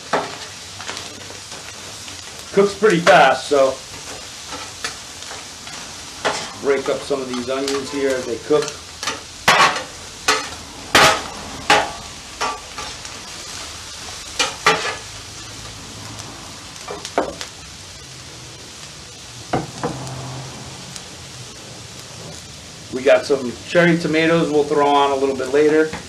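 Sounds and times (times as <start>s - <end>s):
vegetables sizzling on griddle: 0.0s - 26.0s
metal spatulas scraping griddle: 4.5s - 13.0s, 14.4s - 15.1s.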